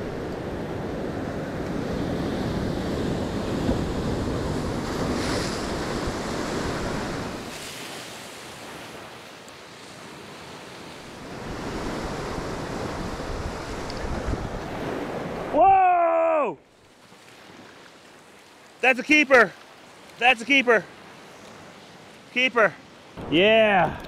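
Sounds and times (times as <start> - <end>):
ocean surf washing: 0.0 - 24.0
wind on microphone: 11.3 - 15.5.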